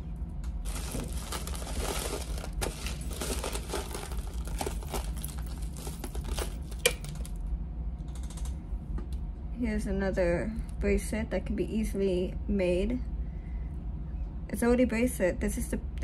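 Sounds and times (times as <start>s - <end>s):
jewelry rustling and clicking: 0.7s - 7.4s.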